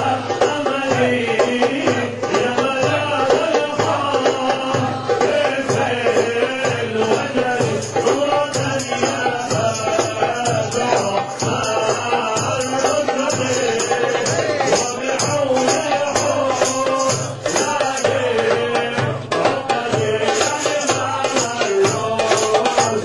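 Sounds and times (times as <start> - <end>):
group of voices chanting: 0.0 - 9.6
rattling percussion: 0.0 - 23.0
rhythmic drum beat: 0.0 - 23.0.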